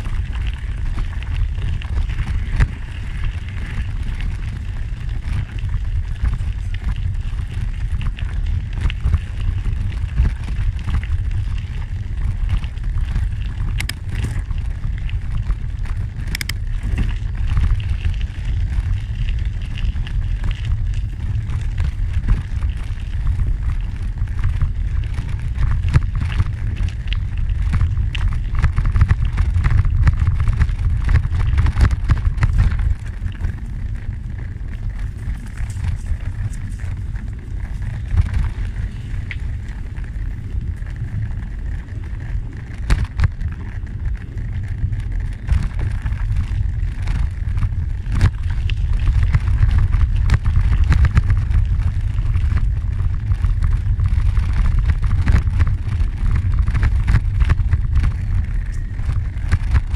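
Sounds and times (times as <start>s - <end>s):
gravel crunching: 0.0s - 59.9s
wind rumbling on microphone: 0.0s - 59.9s
sharp clicks: 16.2s - 16.6s.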